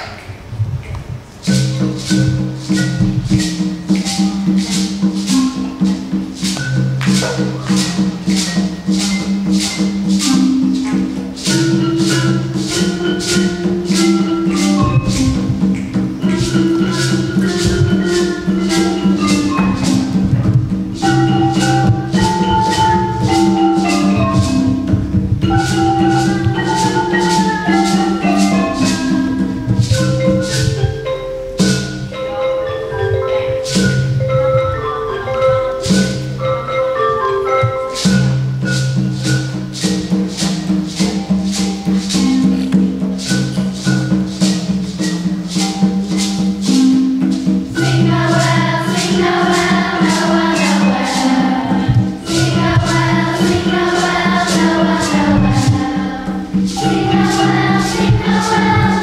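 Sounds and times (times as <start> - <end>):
drum: 0.0 - 59.0
shaker beat: 0.0 - 59.0
xylophones playing a tune: 1.4 - 59.0
children's choir singing: 9.5 - 36.6, 46.6 - 59.0.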